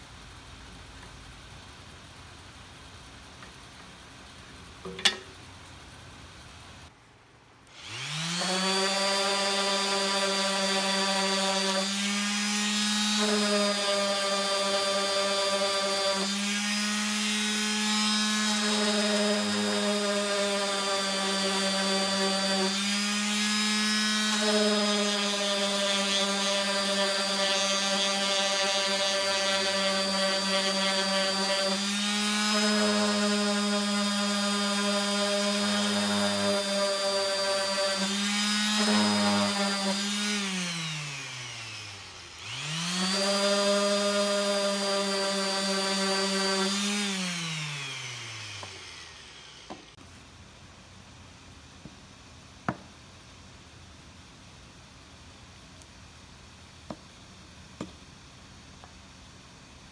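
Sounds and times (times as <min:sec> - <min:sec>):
orbital sander sanding wood: 0:07.7 - 0:50.0.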